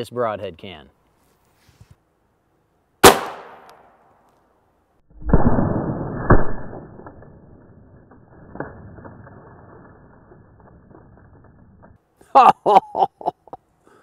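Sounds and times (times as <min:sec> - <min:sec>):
rustling: 0:01.0 - 0:02.0
arrow striking bone crack: 0:05.2 - 0:07.5.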